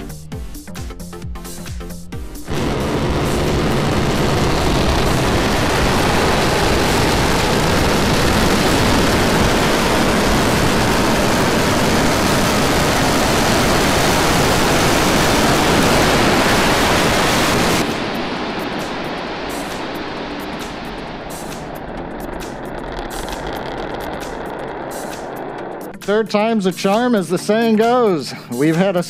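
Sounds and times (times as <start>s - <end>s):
rocket engines firing: 2.4s - 25.9s.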